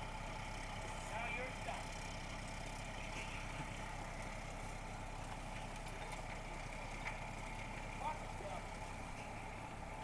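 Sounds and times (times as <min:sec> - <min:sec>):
diesel engine idling: 0:00.0 - 0:10.0.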